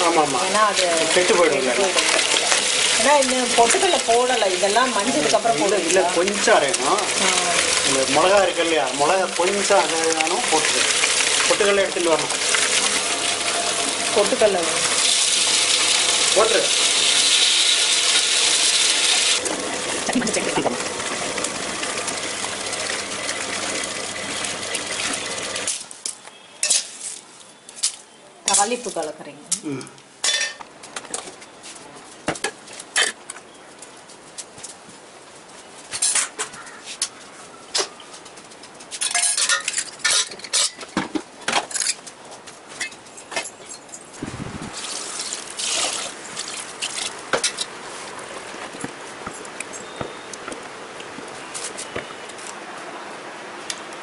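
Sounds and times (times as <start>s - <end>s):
liquid splash: 0.2s - 25.8s, 44.2s - 47.5s
ladle sloshing liquid: 0.8s - 25.7s, 44.2s - 48.6s
electric grinder motor running: 12.4s - 22.0s
steel vessels clattering: 39.0s - 41.0s.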